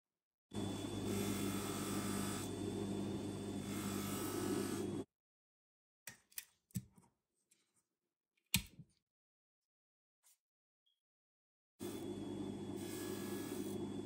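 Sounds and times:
polishing motor humming: 0:00.6 - 0:05.0, 0:11.8 - 0:14.0.

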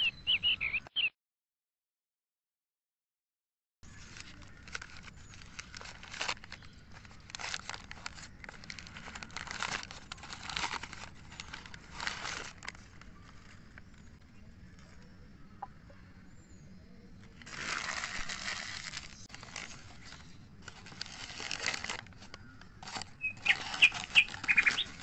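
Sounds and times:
newspaper crinkling and rustling: 0:03.9 - 0:15.0, 0:17.2 - 0:25.0.

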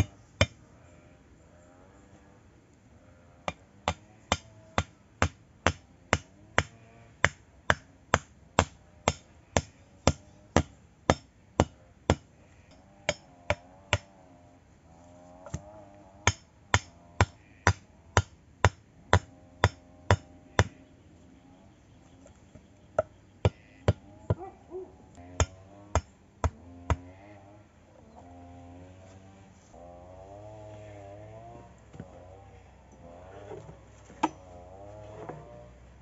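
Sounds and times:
wooden stake being hammered: 0:00.0 - 0:00.6, 0:03.5 - 0:12.3, 0:16.3 - 0:20.8, 0:23.0 - 0:24.5, 0:25.3 - 0:27.1.

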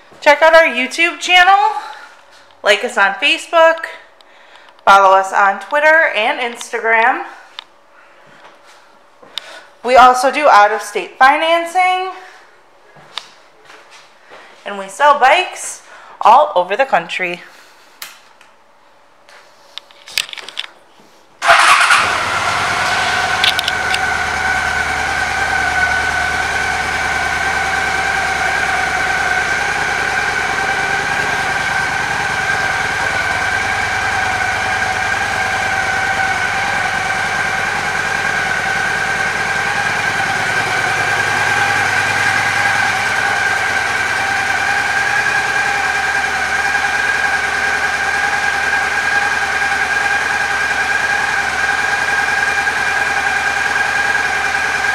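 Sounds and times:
motorcycle engine idling: 0:21.4 - 0:54.9
steady whine: 0:21.5 - 0:54.9.

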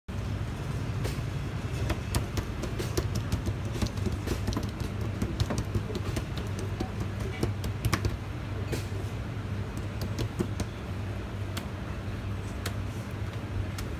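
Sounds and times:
steady low hum: 0:00.1 - 0:13.9
hands slapping dough on steel: 0:01.8 - 0:08.2, 0:09.7 - 0:10.8.

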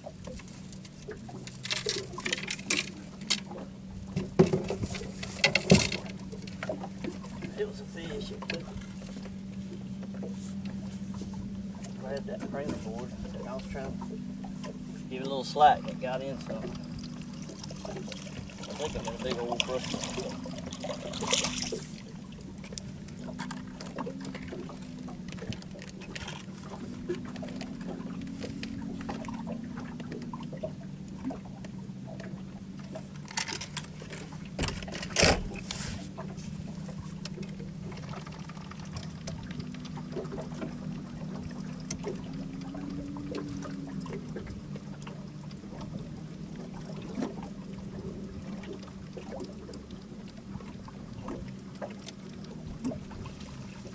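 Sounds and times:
steady low hum: 0:00.0 - 0:53.9
water lapping against boat hull: 0:00.0 - 0:53.9.

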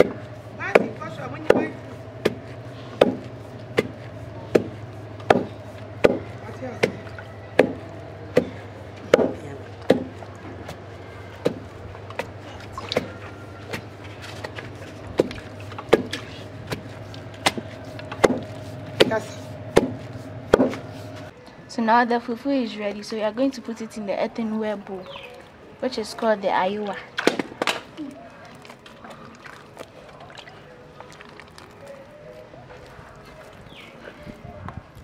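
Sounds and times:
wooden pestle pounding in mortar: 0:00.0 - 0:10.8, 0:11.4 - 0:12.3, 0:15.2 - 0:20.9.

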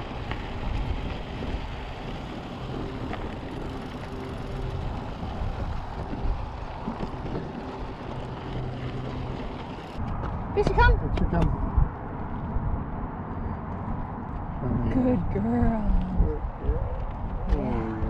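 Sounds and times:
bike tyres rumbling on dirt: 0:00.0 - 0:10.9.

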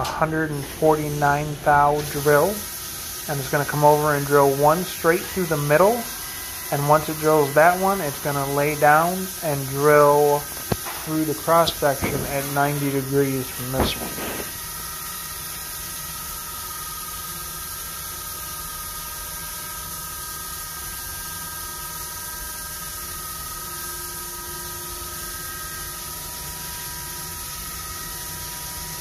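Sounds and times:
coolant spray hissing: 0:00.6 - 0:16.0
high machine tones: 0:03.8 - 0:14.6.

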